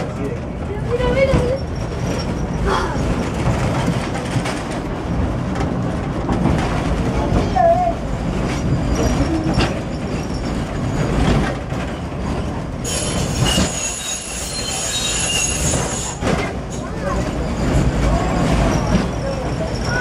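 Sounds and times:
funicular car rumbling: 0.0s - 20.0s
wheels squealing on track: 12.8s - 20.0s.

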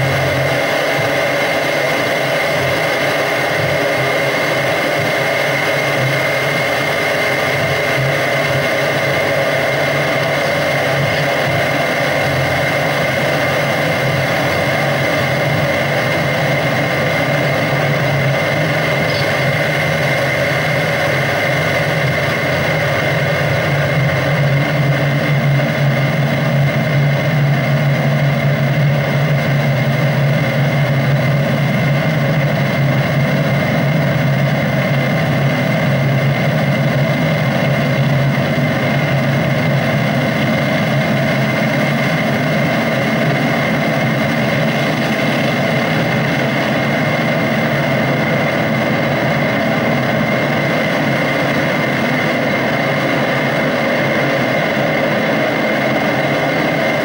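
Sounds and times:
electronic drone: 0.0s - 57.0s
low hum: 2.8s - 57.0s
thin high tone: 18.8s - 20.3s.

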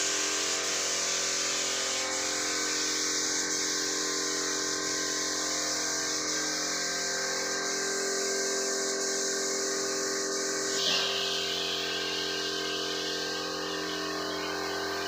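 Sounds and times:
spray gun hissing: 0.0s - 15.0s
machine hum: 4.4s - 15.0s.

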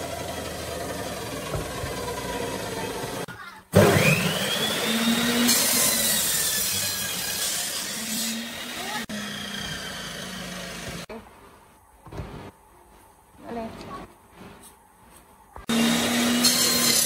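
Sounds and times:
saw blade cutting wood: 0.0s - 11.1s, 15.7s - 17.0s
table saw whine: 0.0s - 11.1s, 15.7s - 17.0s.

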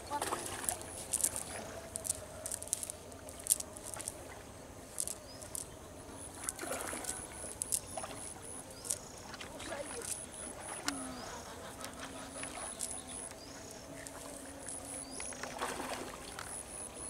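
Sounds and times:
net mesh clicking and rustling: 0.6s - 4.2s, 4.9s - 5.7s, 6.3s - 9.1s.

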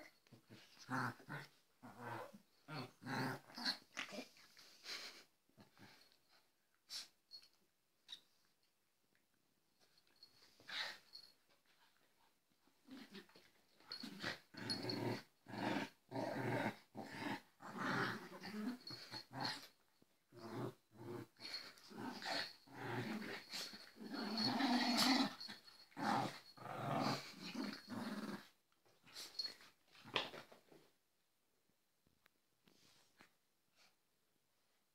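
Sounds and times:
dogs growling: 12.9s - 28.5s.

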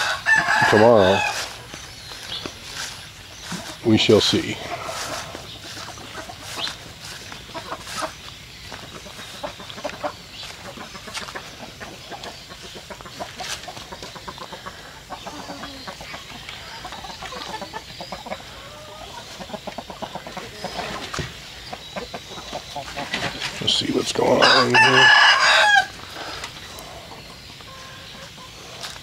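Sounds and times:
footsteps crunching on dry leaves: 0.0s - 14.2s, 22.9s - 27.0s
chickens clucking: 0.0s - 29.0s.

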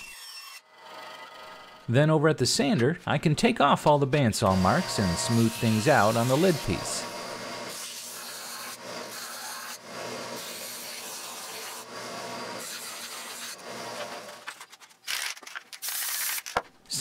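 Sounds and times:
belt sander sanding wood: 4.4s - 14.5s.

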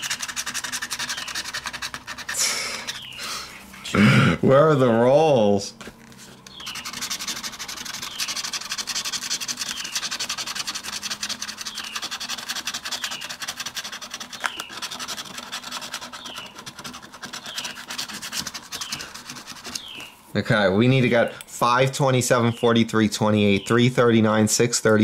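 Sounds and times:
lottery ticket being scratched: 0.0s - 3.8s, 6.0s - 20.1s.

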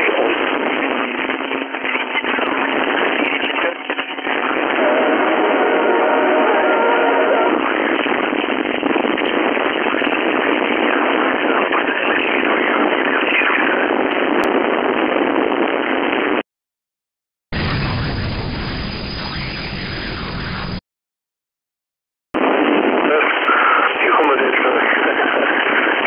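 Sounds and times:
radio static hiss: 0.0s - 16.4s, 22.4s - 26.0s
faint warbling radio signals: 17.6s - 20.8s.

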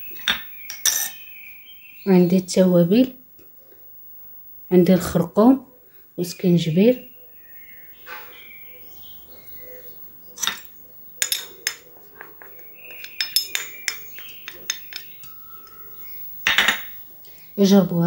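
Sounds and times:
metal spoon clinking on ceramic dish: 0.2s - 1.2s, 10.4s - 15.8s, 16.5s - 17.0s.

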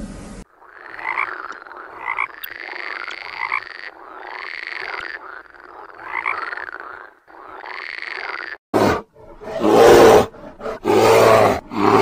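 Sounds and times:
frog croaking: 0.5s - 8.6s.

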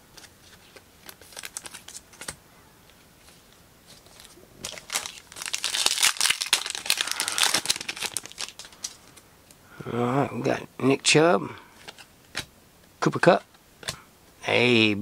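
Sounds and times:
cards and plastic sleeve rustling: 0.0s - 9.2s, 11.8s - 12.5s
foil wrapper crinkling and tearing: 0.1s - 2.4s, 4.0s - 9.2s.

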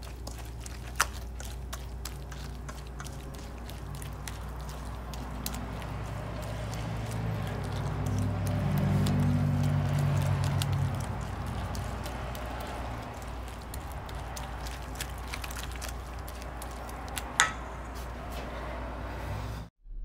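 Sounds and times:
whisk wires clicking on metal bowl: 0.0s - 17.7s
whisk stirring thick dressing: 0.0s - 18.5s.

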